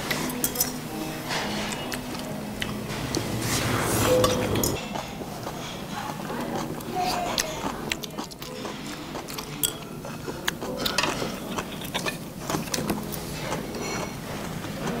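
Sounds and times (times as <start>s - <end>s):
chopsticks clicking on dishes: 4.1s - 14.2s.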